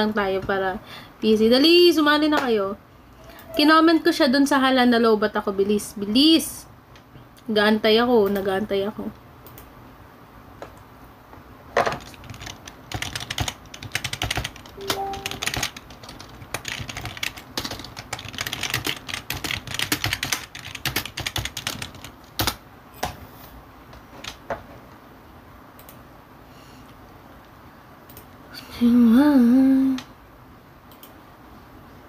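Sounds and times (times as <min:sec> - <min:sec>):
keyboard typing clicks: 0:12.0 - 0:22.6, 0:30.9 - 0:31.2
brief low tone: 0:14.8 - 0:15.4.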